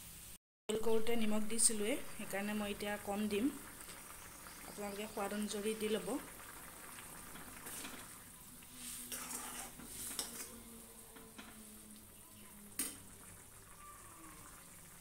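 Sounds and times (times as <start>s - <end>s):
curry bubbling: 1.5s - 15.0s
ladle scraping a pan: 7.4s - 8.1s, 8.7s - 10.6s.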